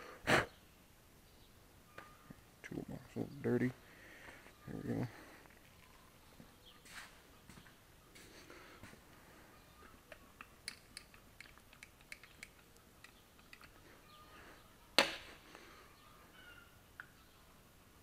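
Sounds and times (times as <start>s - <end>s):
bird calling faintly: 1.4s - 2.4s, 3.2s - 17.7s
metal engine parts clicking: 10.6s - 13.8s.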